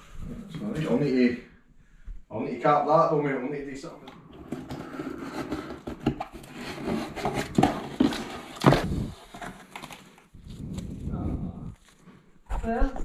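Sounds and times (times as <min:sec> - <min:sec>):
cardboard flaps rustling and scraping: 0:04.4 - 0:11.1.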